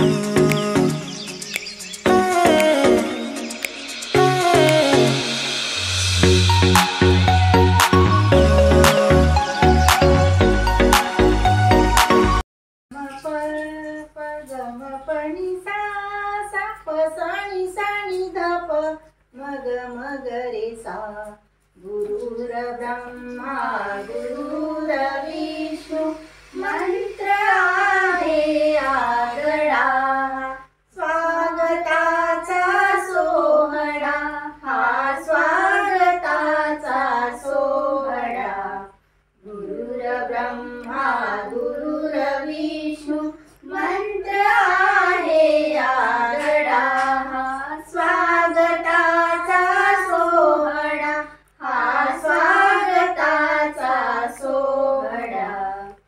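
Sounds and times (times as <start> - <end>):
girl singing: 2.1 - 5.4, 12.9 - 56.0
woman singing: 2.1 - 5.6, 12.9 - 56.0.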